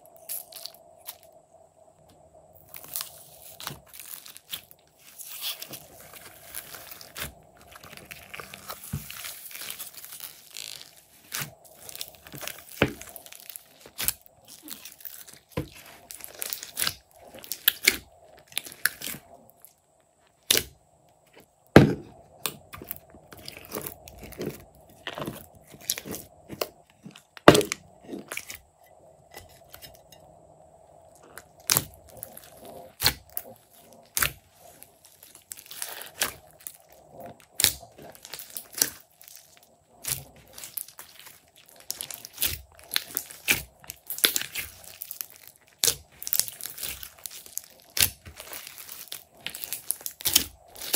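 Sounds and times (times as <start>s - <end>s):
hands kneading sticky slime: 2.6s - 19.6s, 31.2s - 50.9s.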